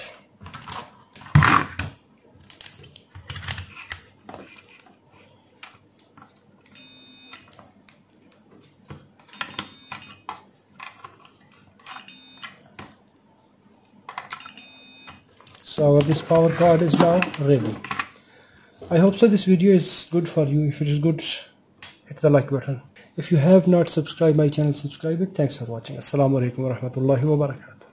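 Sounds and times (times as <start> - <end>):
multimeter beeps: 6.7 - 7.5, 9.3 - 10.3, 11.9 - 12.6, 14.3 - 15.2.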